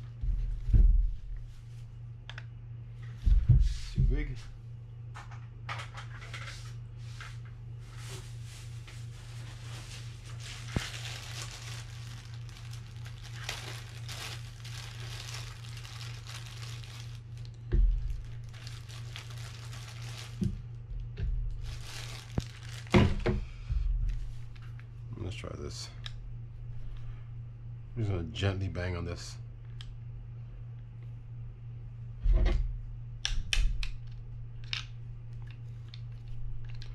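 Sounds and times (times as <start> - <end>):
steady low hum: 0.0 - 36.9
rustling and crinkling: 5.8 - 25.0.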